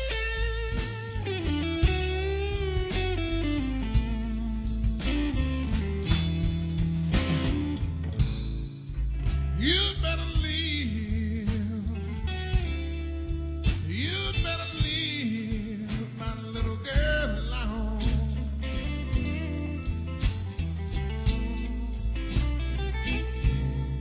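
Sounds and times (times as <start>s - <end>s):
blues band playing: 0.0s - 24.0s
person singing bending phrases: 9.5s - 12.9s, 13.8s - 19.0s.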